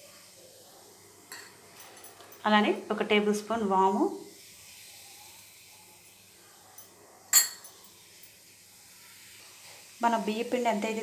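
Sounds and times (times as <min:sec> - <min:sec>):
faint steady hiss: 0:00.0 - 0:11.0
steel spoon clinking on pan: 0:01.3 - 0:02.5, 0:06.8 - 0:08.4.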